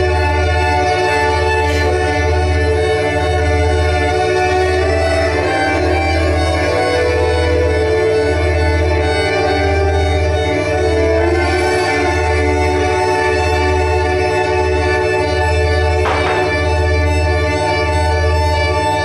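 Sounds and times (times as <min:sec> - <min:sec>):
bowed violin long notes: 0:00.0 - 0:19.0
steady electronic drone tones: 0:14.7 - 0:19.0.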